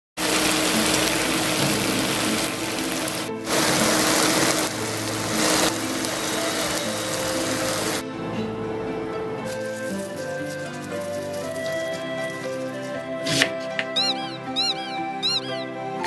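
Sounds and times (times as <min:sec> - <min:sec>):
ribs sizzling in a frying pan: 0:00.2 - 0:08.0.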